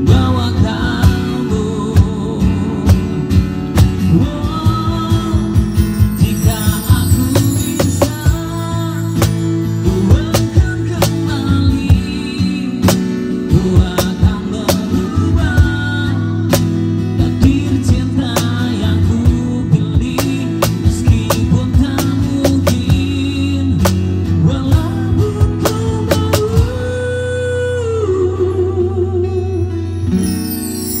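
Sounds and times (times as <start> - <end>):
guitar chords: 0.0 - 31.0
sharp percussion hits: 5.1 - 11.3, 29.7 - 31.0.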